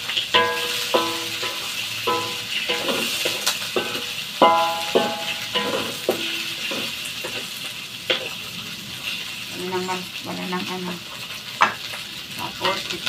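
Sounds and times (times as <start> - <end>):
food sizzling in a wok: 0.0 - 13.0
spatula knocking ringing wok: 0.3 - 7.5, 8.1 - 8.4.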